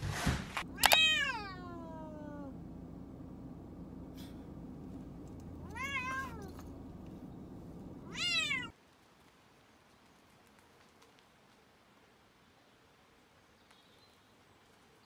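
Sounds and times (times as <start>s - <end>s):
low steady hum: 0.0s - 8.7s
cat meowing: 0.7s - 2.6s, 5.6s - 6.6s, 8.0s - 8.7s.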